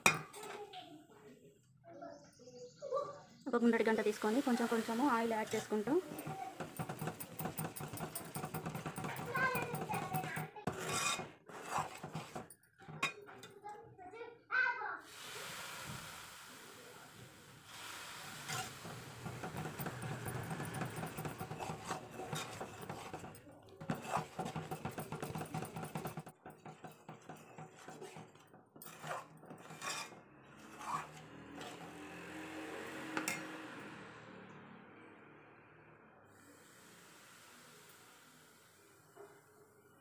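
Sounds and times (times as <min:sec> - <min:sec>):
spoon scraping metal pot: 0:00.0 - 0:00.7, 0:04.0 - 0:13.7, 0:18.2 - 0:33.8.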